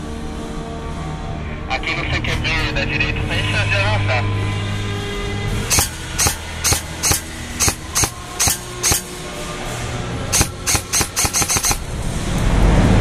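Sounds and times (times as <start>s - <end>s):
low rumbling noise: 0.0s - 13.0s
airsoft rifle single shots: 5.7s - 9.1s, 10.3s - 11.8s.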